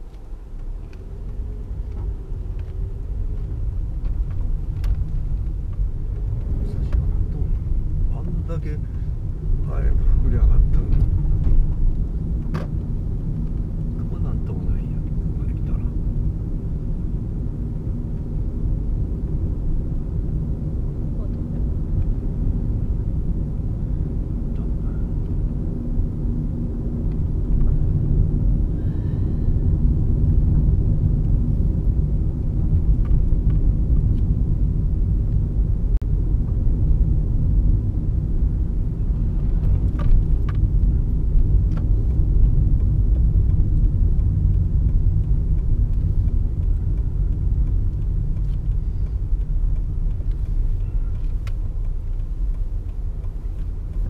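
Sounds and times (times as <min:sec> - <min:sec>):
low rumble of engine and tyres: 0:00.0 - 0:54.0.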